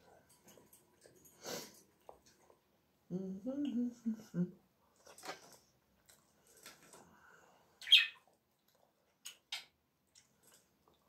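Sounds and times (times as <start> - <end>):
bird chirp: 7.8 - 8.3.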